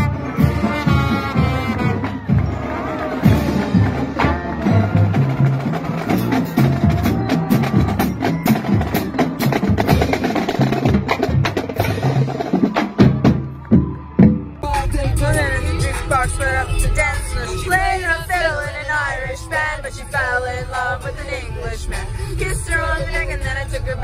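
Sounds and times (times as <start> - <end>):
trombones and sousaphones: 0.0 - 8.0
snare and bass drums: 0.0 - 16.4
other music: 14.5 - 24.0.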